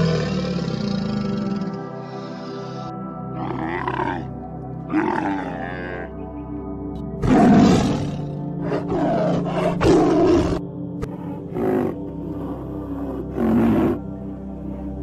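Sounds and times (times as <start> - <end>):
tiger roaring and growling: 0.0 - 2.2, 4.9 - 6.1, 7.2 - 15.0
background music: 0.0 - 15.0
camel groaning: 3.3 - 6.2, 7.2 - 15.0.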